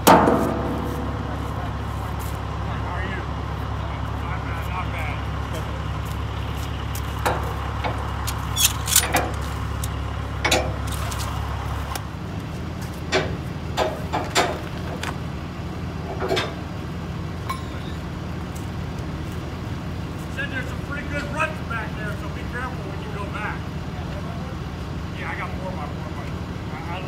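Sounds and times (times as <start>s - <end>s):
steady low rumble: 0.0s - 27.0s
ratchet strap metal clicks: 8.3s - 9.9s.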